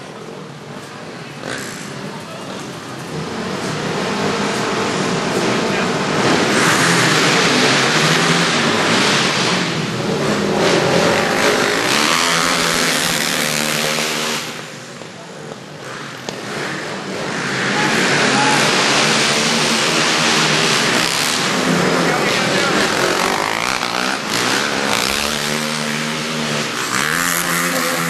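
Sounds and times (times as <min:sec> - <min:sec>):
racing quad bike engines revving: 0:00.0 - 0:28.0.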